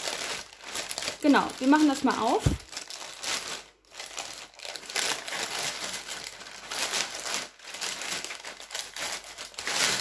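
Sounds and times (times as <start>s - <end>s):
plastic mailer bag crinkling: 0.0s - 10.0s
scissors cutting plastic: 4.7s - 10.0s.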